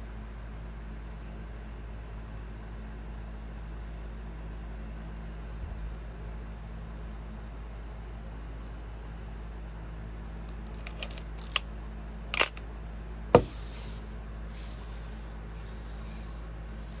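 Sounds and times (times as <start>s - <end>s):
soft handling noise: 10.3s - 11.6s, 13.4s - 17.0s
film advance lever ratcheting: 10.5s - 11.6s, 12.4s - 12.6s
small camera clicks: 10.5s - 11.6s, 12.4s - 12.6s
shutter mirror-slap click: 12.4s - 12.6s.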